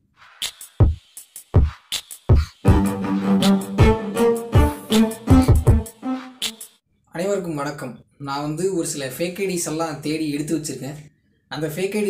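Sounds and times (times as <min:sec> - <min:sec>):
held pitched synth notes: 0:02.7 - 0:06.4
heavy low bass thumps: 0:05.3 - 0:05.9.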